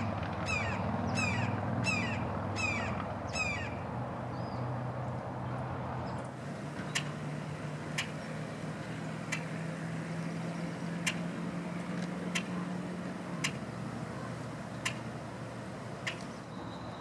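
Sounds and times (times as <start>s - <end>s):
low vehicle engine hum: 0.0s - 17.0s
bird giving sharp dry clicks: 6.9s - 7.1s, 9.3s - 9.5s, 12.0s - 12.6s, 13.4s - 13.6s, 14.8s - 15.0s, 16.0s - 16.4s.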